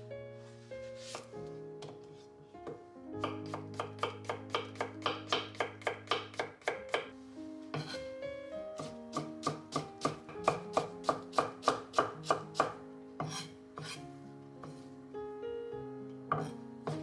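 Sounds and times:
background music sustained tones: 0.0s - 17.0s.

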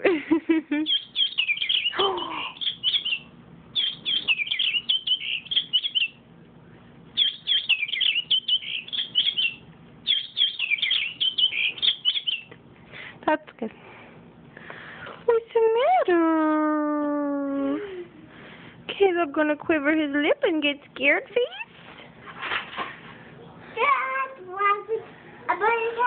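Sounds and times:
toy bird chirping: 0.9s - 2.0s, 2.6s - 6.2s, 7.2s - 12.5s.

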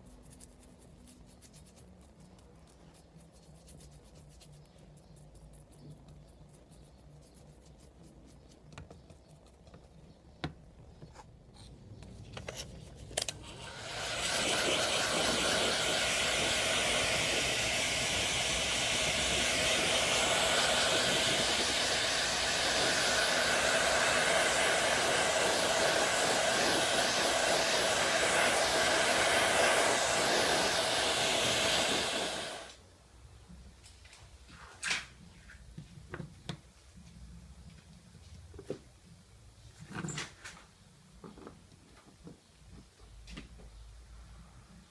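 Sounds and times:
faint taps and clicks: 8.6s - 12.5s
hair dryer blowing: 13.4s - 32.8s.

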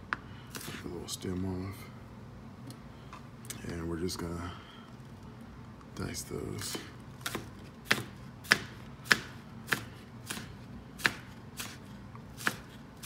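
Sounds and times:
knife chopping on plastic board: 6.6s - 12.8s.

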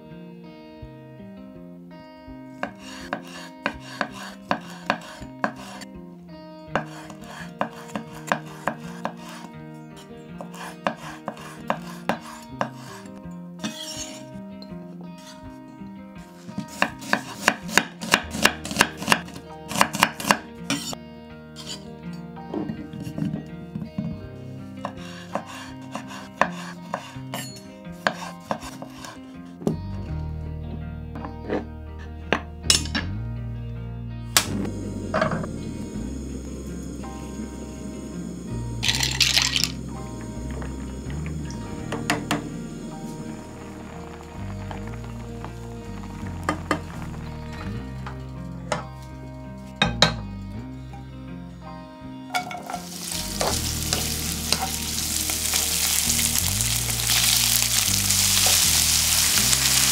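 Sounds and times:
soft background music: 0.0s - 59.9s
scrape on cutting board: 2.6s - 5.9s, 6.8s - 9.5s, 10.4s - 14.2s, 24.8s - 27.2s, 28.0s - 29.3s.

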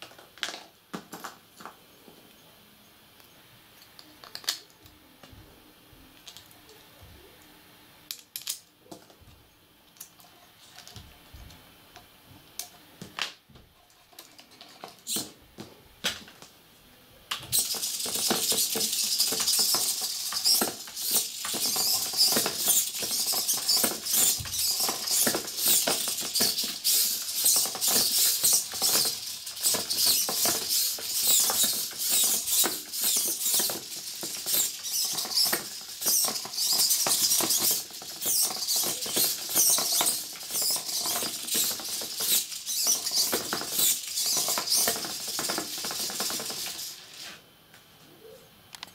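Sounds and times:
plastic parts scraping on wood: 17.4s - 47.4s
servo motors whirring: 17.5s - 47.2s.

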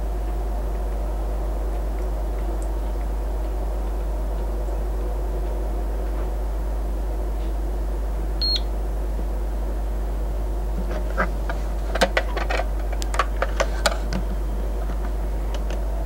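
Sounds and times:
steady low hum: 0.0s - 16.0s
small clicks and taps: 10.8s - 15.8s.

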